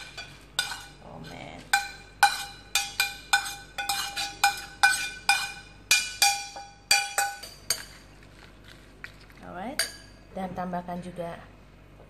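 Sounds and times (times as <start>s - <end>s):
metal spoon clinking on pan: 0.0s - 1.0s, 1.6s - 8.0s, 9.8s - 10.2s.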